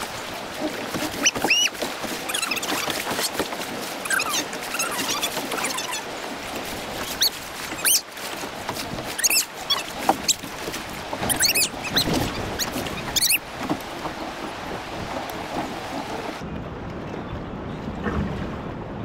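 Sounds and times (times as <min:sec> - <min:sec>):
water splashing against a kayak: 0:00.0 - 0:17.0
short squeaky high-pitched sounds: 0:04.1 - 0:06.0, 0:09.2 - 0:09.8, 0:11.3 - 0:13.4.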